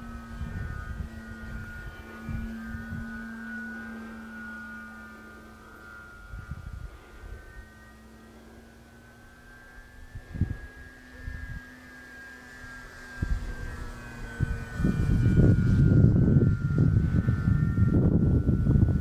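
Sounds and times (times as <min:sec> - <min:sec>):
wind buffeting microphone: 0:00.0 - 0:03.6, 0:06.1 - 0:07.7, 0:09.8 - 0:11.7, 0:12.9 - 0:19.0
model plane engine droning: 0:00.0 - 0:19.0.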